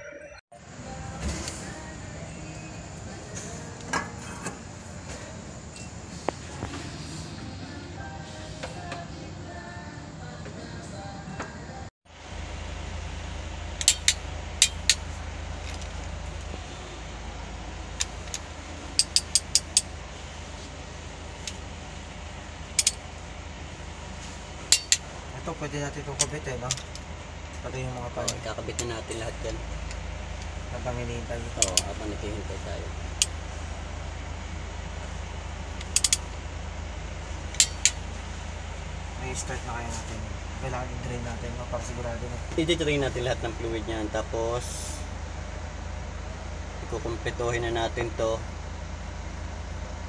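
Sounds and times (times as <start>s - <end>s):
steady low hum: 0.5s - 50.0s
ratchet wrench clicking: 13.8s - 15.1s, 18.0s - 19.9s, 22.8s - 23.0s, 24.7s - 25.1s, 31.6s - 31.9s, 35.8s - 36.3s, 37.6s - 38.0s.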